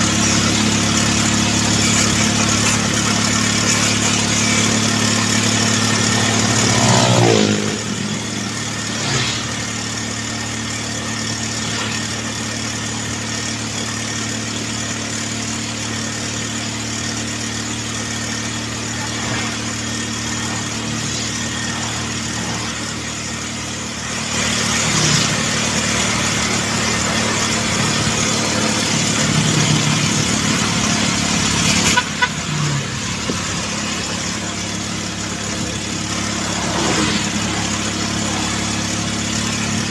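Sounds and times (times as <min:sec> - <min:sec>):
wind and road noise: 0:00.0 - 0:10.3, 0:19.1 - 0:39.9
motorcycle engine running: 0:00.0 - 0:39.9.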